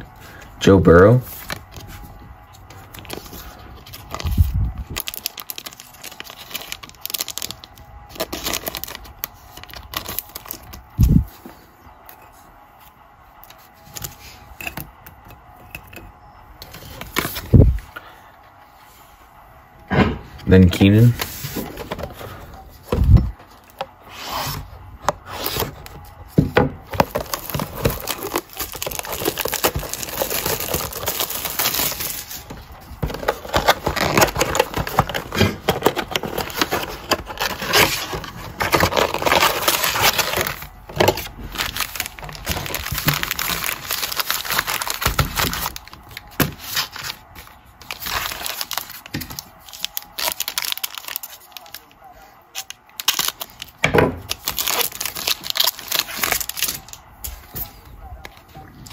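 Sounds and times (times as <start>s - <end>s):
foil packs rustling: 0.2s - 11.7s, 20.5s - 58.9s
cardboard box torn open: 26.8s - 47.0s, 47.9s - 51.3s, 54.3s - 56.9s.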